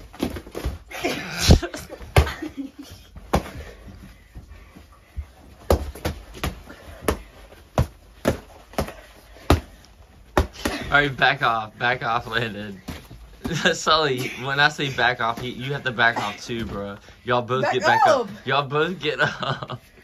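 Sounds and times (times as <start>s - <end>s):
boxing glove punches landing: 5.6s - 11.0s.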